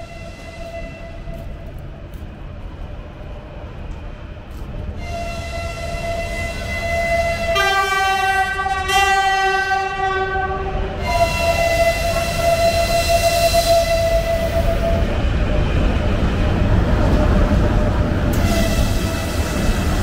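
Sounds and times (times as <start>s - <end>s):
train horn: 0.0s - 1.6s, 4.9s - 15.2s, 18.3s - 20.0s
train rumbling on rails: 0.0s - 20.0s.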